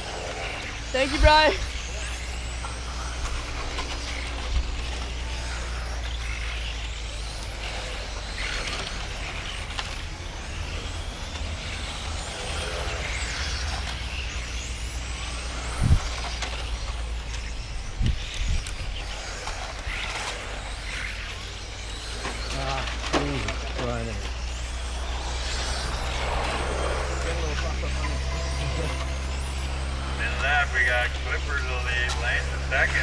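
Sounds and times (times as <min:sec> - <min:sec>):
rc car motors whining: 0:00.0 - 0:33.0
low rumble: 0:22.9 - 0:32.8.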